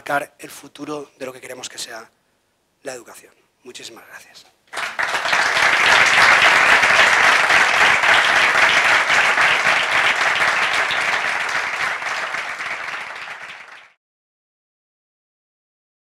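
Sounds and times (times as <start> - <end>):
audience applauding: 4.7 - 14.0.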